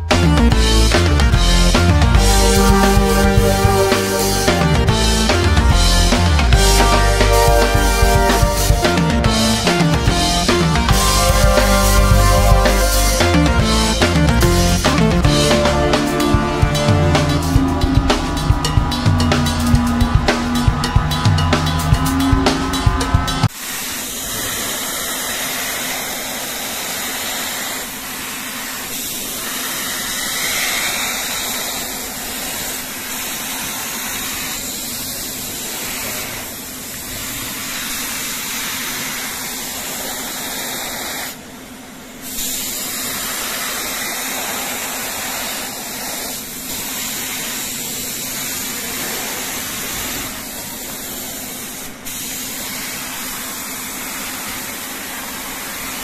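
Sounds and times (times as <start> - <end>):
spray gun hissing: 23.6 - 41.6, 42.2 - 56.0.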